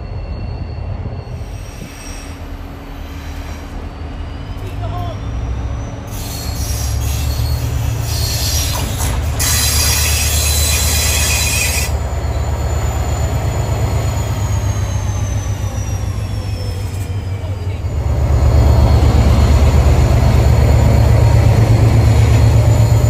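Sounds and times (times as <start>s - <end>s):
diesel locomotive engine rumble: 0.0s - 23.0s
high-pitched wheel squeal: 5.5s - 12.5s, 13.6s - 17.4s.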